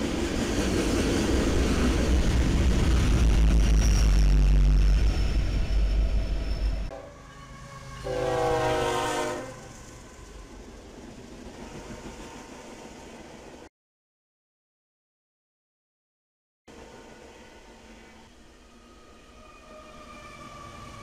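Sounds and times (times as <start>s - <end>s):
diesel freight train rumbling: 0.0s - 13.7s
locomotive horn blast: 6.9s - 10.4s.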